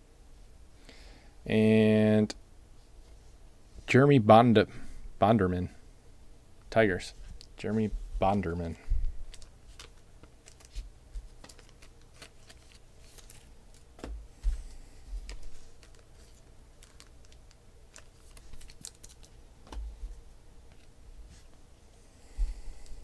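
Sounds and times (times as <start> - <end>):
cards handled on tabletop: 9.4 - 14.1.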